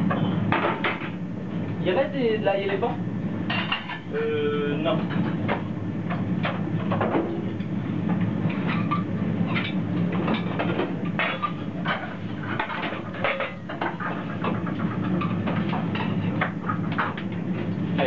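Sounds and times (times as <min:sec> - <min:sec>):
low kitchen hum: 0:00.0 - 0:18.0
clatter of pans and dishes: 0:00.1 - 0:01.2, 0:03.5 - 0:04.1, 0:04.9 - 0:07.8, 0:08.5 - 0:17.7.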